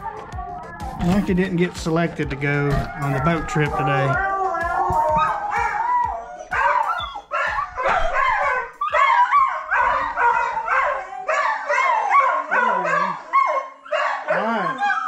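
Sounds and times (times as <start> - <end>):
dog howling: 0.0 - 15.0.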